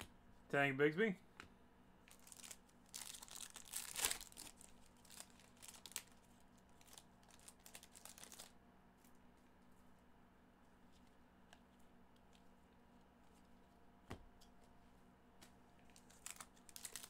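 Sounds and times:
foil wrapper crinkling and tearing: 0:02.1 - 0:08.6, 0:15.9 - 0:17.0.

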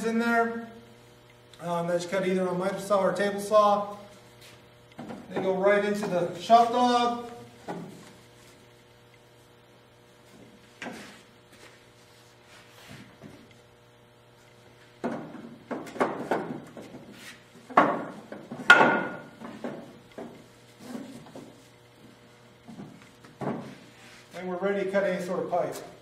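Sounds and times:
low mains hum: 0:00.0 - 0:26.0
wood knocking and clunking: 0:15.0 - 0:17.1, 0:17.7 - 0:21.6, 0:22.6 - 0:23.8.

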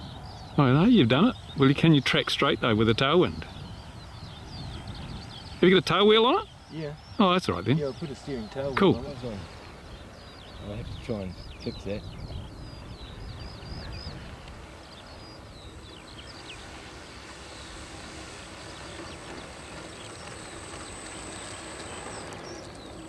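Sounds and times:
model airplane electric motor whine: 0:16.2 - 0:23.0.

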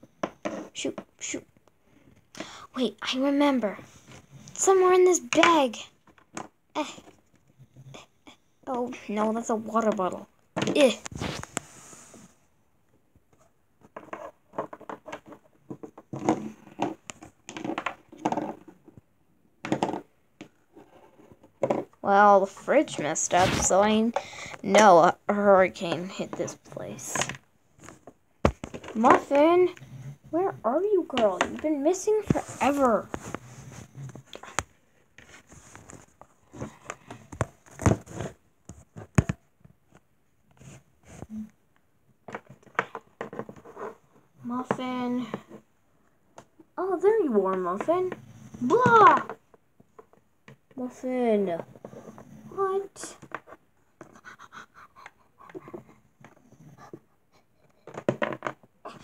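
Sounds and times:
plastic toys knocking and rattling: 0:00.0 - 0:01.2, 0:04.7 - 0:07.2, 0:13.8 - 0:29.6, 0:30.4 - 0:33.0, 0:42.2 - 0:45.7, 0:47.4 - 0:52.2, 0:57.8 - 0:59.0.

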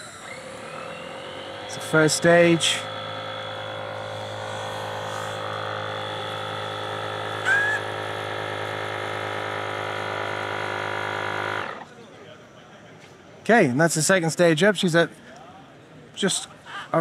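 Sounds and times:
short rising chirp: 0:00.0 - 0:01.7, 0:07.4 - 0:07.9
electric inflation pump humming: 0:00.0 - 0:11.9.

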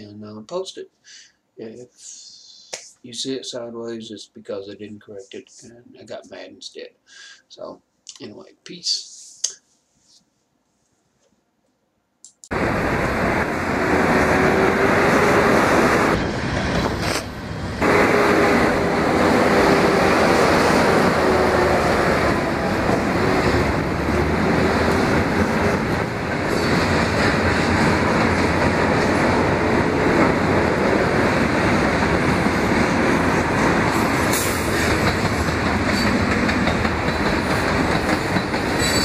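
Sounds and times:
train wheels rumbling on rail: 0:12.5 - 0:39.0.

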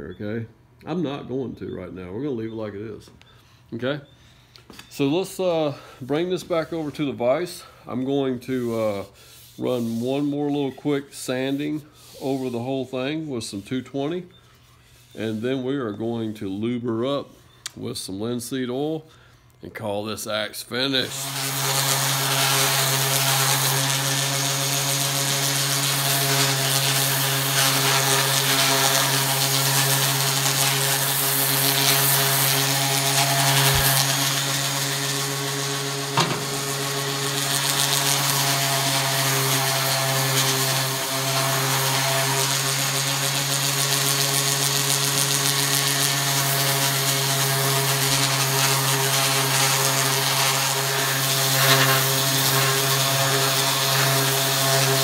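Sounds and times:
orbit sander on wood: 0:05.4 - 0:13.8, 0:20.9 - 0:55.0.

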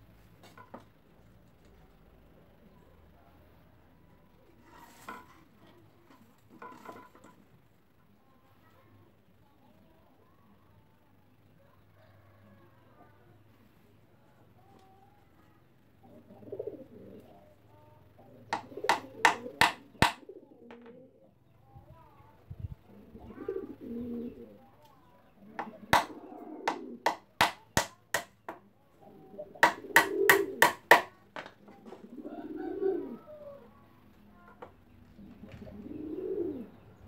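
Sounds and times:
doves cooing: 0:16.0 - 0:21.4, 0:22.8 - 0:27.4, 0:29.0 - 0:31.0, 0:31.7 - 0:37.0
sharp knocks on wood: 0:18.6 - 0:20.2, 0:25.6 - 0:26.1, 0:26.7 - 0:28.6, 0:29.6 - 0:31.5.

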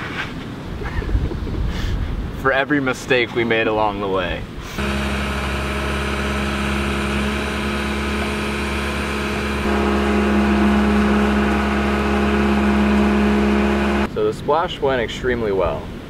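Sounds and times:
engine running steadily: 0:04.7 - 0:14.1.

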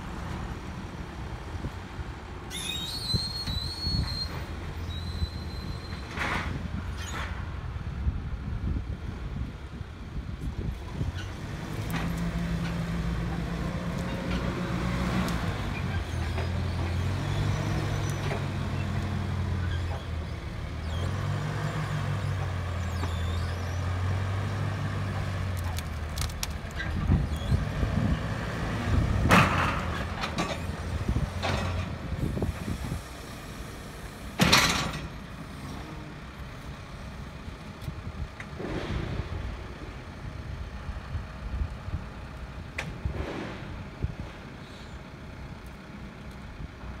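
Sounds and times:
diesel engine under load: 0:00.0 - 0:47.0
debris crashing and cracking: 0:25.5 - 0:26.8.

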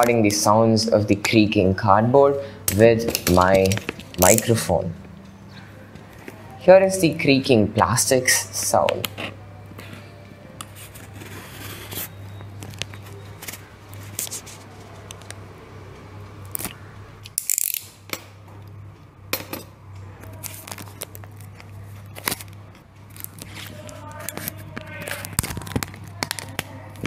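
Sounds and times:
steady low hum: 0:00.0 - 0:11.2
plastic crackling: 0:02.7 - 0:04.7, 0:20.2 - 0:27.0.

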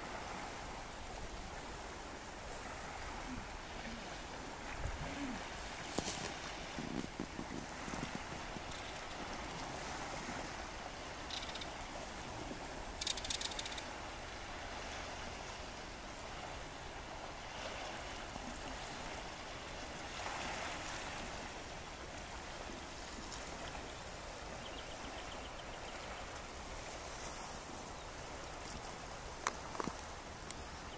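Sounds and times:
small waves washing over rocks: 0:00.0 - 0:13.2, 0:13.8 - 0:23.9.

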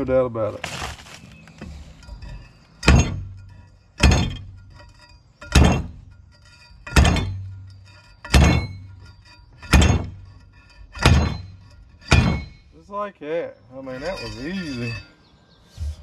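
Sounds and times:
metal pipe impacts ringing: 0:02.0 - 0:12.8, 0:13.7 - 0:15.2.

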